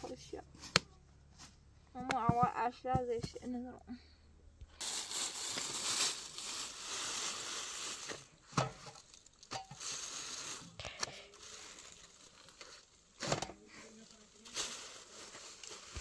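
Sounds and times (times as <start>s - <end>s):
plastic bag crinkling: 4.8s - 13.2s, 13.8s - 16.0s.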